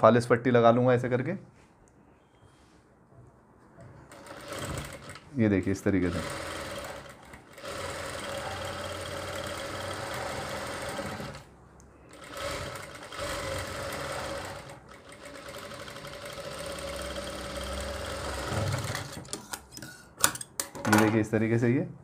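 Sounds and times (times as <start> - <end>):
sewing machine running: 4.1 - 5.2, 6.0 - 11.5, 12.1 - 19.4.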